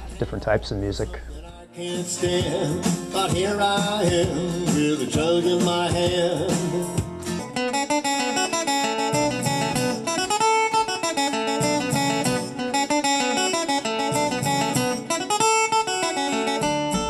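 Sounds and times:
guitar picking quick notes: 0:02.1 - 0:17.0.

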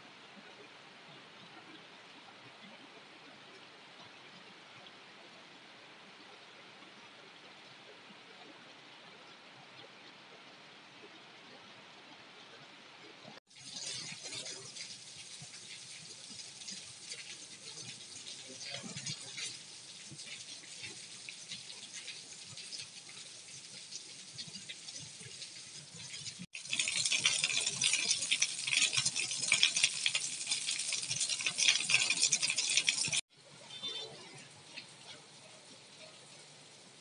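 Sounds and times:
heavy rain splashing into puddles: 0:13.5 - 0:37.0.

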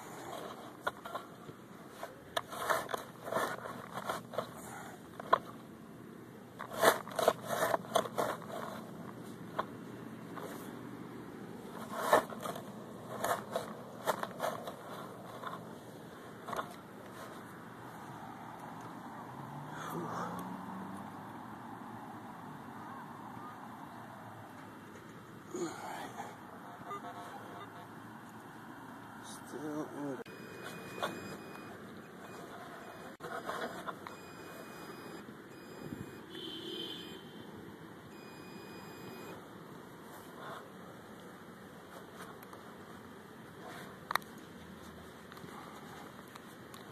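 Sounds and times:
shovel digging into soil: 0:06.6 - 0:09.1
metal detector buzzing tone: 0:30.3 - 0:37.2, 0:38.1 - 0:39.4.

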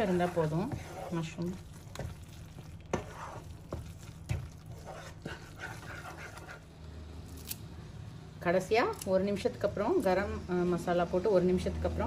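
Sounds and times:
wet scraping and squelching: 0:00.0 - 0:06.7.

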